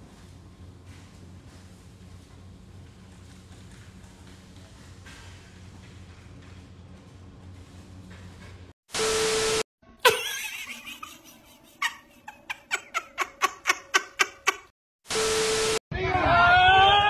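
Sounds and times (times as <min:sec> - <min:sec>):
tv static bursts: 0:15.1 - 0:15.8.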